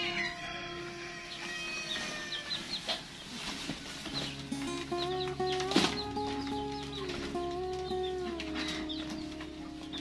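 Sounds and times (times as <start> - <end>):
goat bleating: 0.0 - 2.7.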